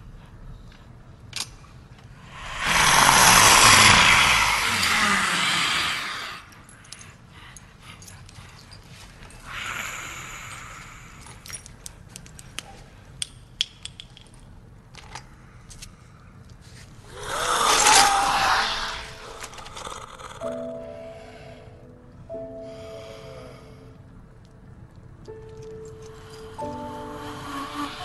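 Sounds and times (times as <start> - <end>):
breathy hiss: 2.2 - 12.0, 15.3 - 24.5, 25.2 - 28.0
rasping creature cry: 2.3 - 6.5, 17.1 - 20.5.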